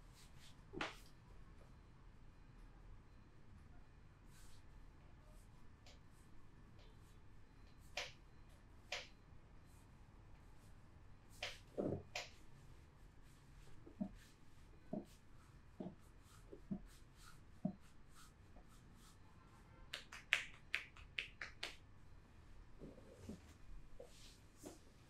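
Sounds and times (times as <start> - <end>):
hand slaps on skin: 19.9 - 21.8.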